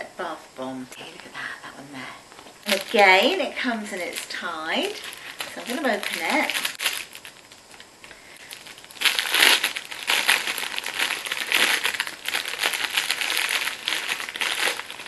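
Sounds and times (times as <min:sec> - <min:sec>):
cellophane wrapper crinkling: 0:02.4 - 0:15.0.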